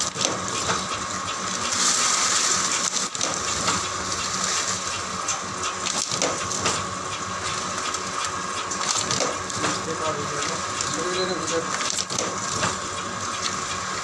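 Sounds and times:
machine clatter and motor hum: 0.0s - 14.0s
sharp knocks of press dies: 4.9s - 13.8s.

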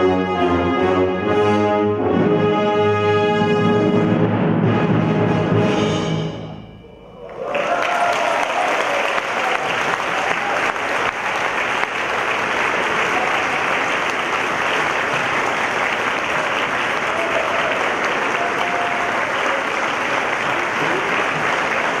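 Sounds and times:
orchestra with solo trumpet: 0.0s - 6.3s
audience applause: 7.2s - 22.0s.

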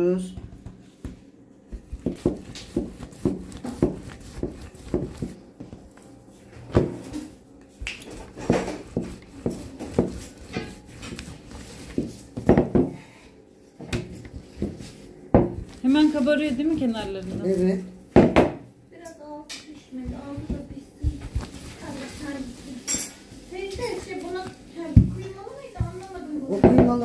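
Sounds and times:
kitchen dishes and pans clattering: 22.8s - 23.2s.

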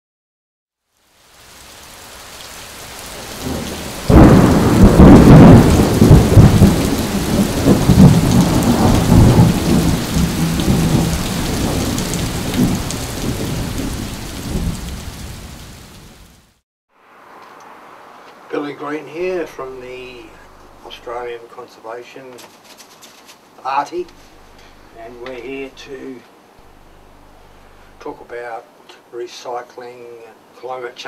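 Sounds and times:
rain hiss: 0.8s - 31.0s
loud thunderclap: 3.2s - 15.6s
rumble of thunder: 3.2s - 15.6s.

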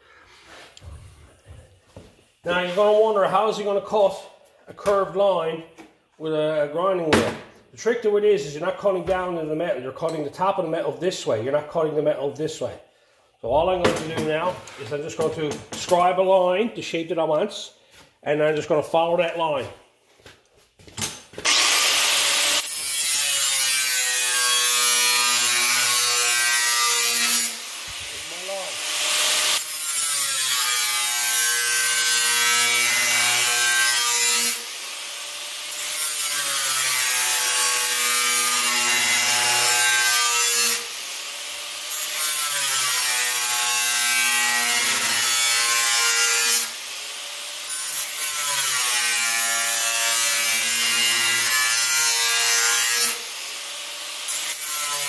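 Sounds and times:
angle grinder cutting sheet steel: 21.4s - 55.0s.

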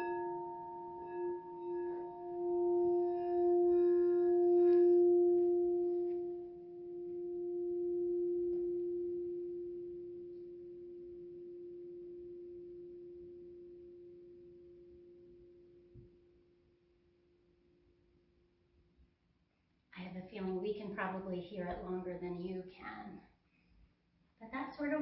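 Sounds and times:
singing bowl ringing: 0.0s - 18.6s.

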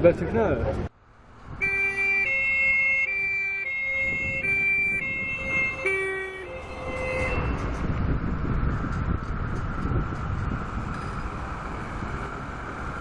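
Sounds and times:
truck engine and tyre noise: 0.0s - 13.0s
two-tone fire truck siren: 1.6s - 7.8s.

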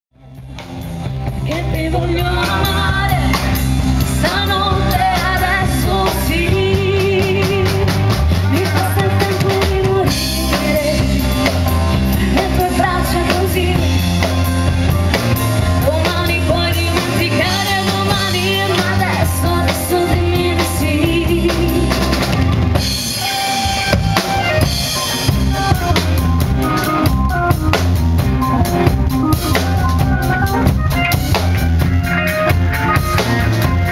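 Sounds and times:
drum kit: 0.2s - 33.9s
live rock band playing: 0.2s - 33.9s
woman singing lead: 1.3s - 14.5s, 15.6s - 22.5s.

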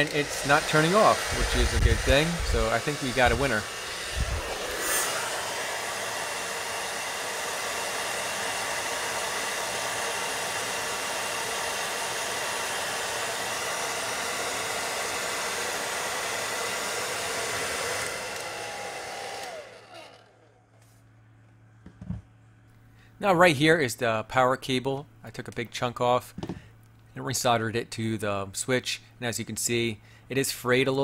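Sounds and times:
hair dryer running: 0.0s - 20.7s
fan winding down whine: 0.0s - 20.9s.

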